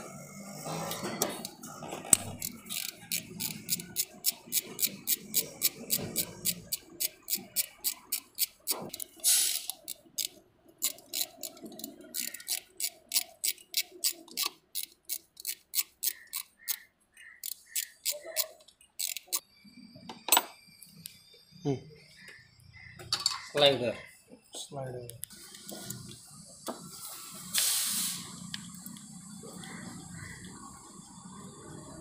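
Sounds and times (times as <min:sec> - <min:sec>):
ratchet wrench clicking: 0:00.8 - 0:19.4.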